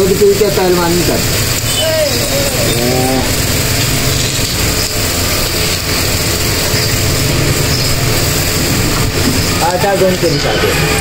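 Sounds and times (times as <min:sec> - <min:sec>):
person's voice: 0:00.0 - 0:03.4
small engine running: 0:00.0 - 0:11.0.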